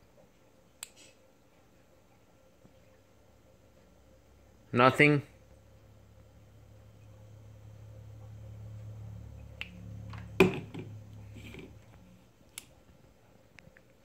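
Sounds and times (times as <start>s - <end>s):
low steady hum: 0.0s - 14.0s
plastic blender knocking on countertop: 10.4s - 11.0s.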